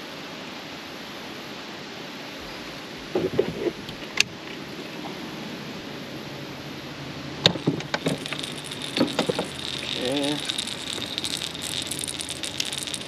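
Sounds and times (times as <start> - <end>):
hiss of wind or water: 0.0 - 13.0
fishing tackle knocks and clicks: 7.4 - 13.0.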